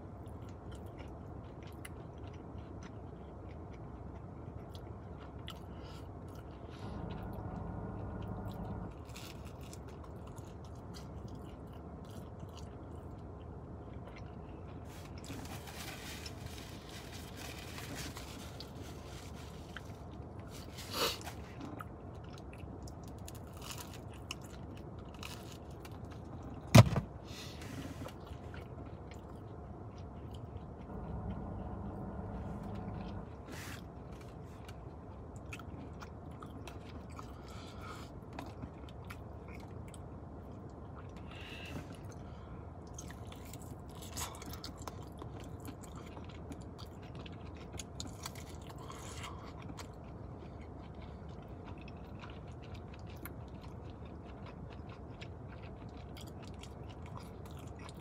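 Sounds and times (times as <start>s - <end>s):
chewing and biting pizza: 0.0s - 26.7s, 27.3s - 58.0s
faint crunching: 14.0s - 21.9s.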